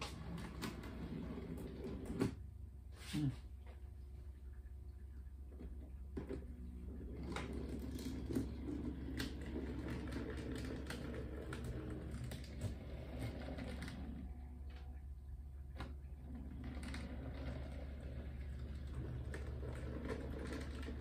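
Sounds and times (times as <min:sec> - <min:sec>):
wheels clicking over rail joints: 0:07.2 - 0:14.2, 0:16.5 - 0:21.0.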